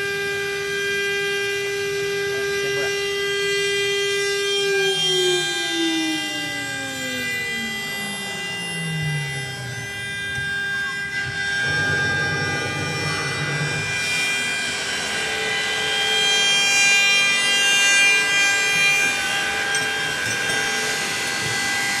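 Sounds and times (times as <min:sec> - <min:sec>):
router spindle high whine: 0:00.0 - 0:22.0
low hum: 0:01.5 - 0:16.6.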